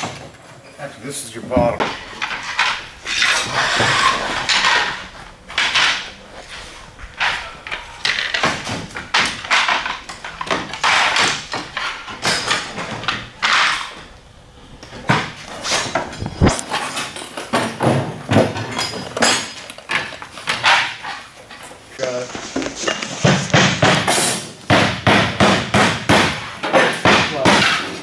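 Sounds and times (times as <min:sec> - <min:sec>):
slates scraping and knocking: 0:01.5 - 0:14.1, 0:14.9 - 0:24.6.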